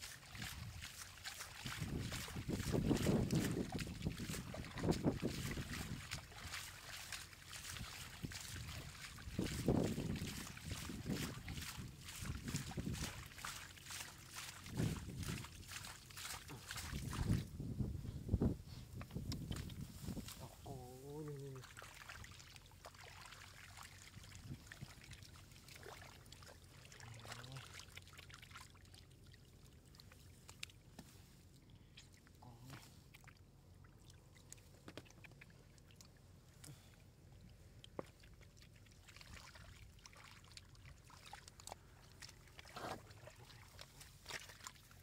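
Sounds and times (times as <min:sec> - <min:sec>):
fish flapping and splashing: 0:00.0 - 0:17.5
shallow water trickling: 0:00.0 - 0:17.7, 0:18.4 - 0:45.0.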